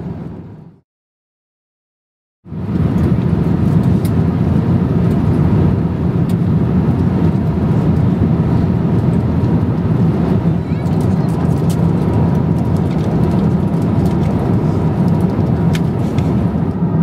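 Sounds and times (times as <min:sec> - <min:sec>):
airplane cabin noise in flight: 0:00.0 - 0:00.8, 0:02.5 - 0:17.0.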